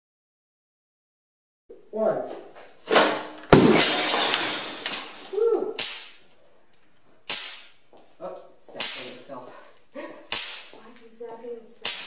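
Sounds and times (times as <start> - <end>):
picture tube imploding bang: 2.9 - 5.2
glass shattering: 3.5 - 6.2
sharp cracks: 3.5 - 6.2, 7.3 - 7.8, 8.7 - 9.3, 10.2 - 10.8, 11.8 - 12.0.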